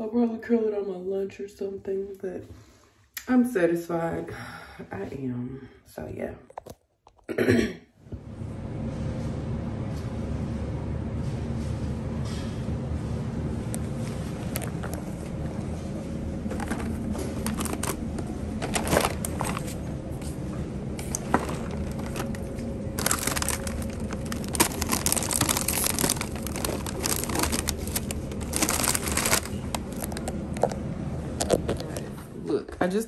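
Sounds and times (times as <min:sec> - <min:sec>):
steady low hum: 0:07.4 - 0:33.0
crinkly material rustling: 0:14.0 - 0:19.9, 0:21.1 - 0:30.8.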